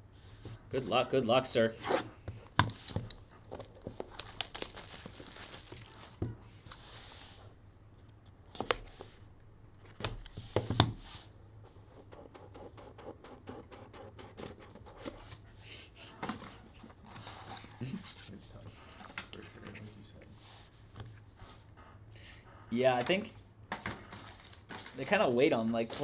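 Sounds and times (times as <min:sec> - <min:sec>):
plastic wrap tearing and crinkling: 0:03.5 - 0:06.2.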